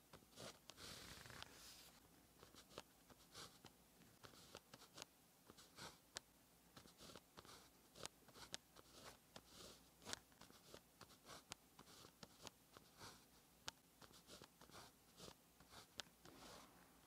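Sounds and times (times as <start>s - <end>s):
pen writing on paper: 0.3s - 1.8s, 2.4s - 6.0s, 6.8s - 13.3s, 14.0s - 16.7s.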